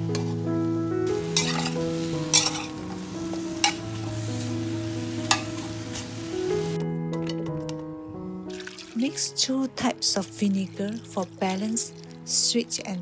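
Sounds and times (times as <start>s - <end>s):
light sizzle: 0.0s - 6.8s
soft background music: 0.0s - 13.0s
spatula scraping a hot pan: 1.2s - 4.6s.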